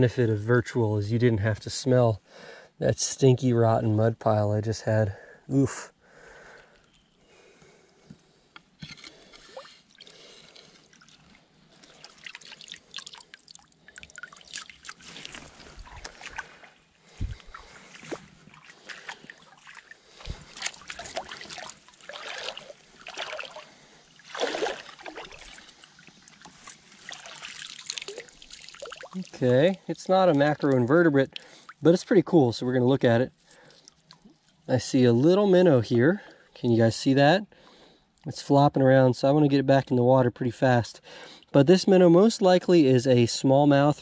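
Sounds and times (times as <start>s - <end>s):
creek water trickling: 8.2s - 34.8s
hands and net splashing water: 9.2s - 29.4s.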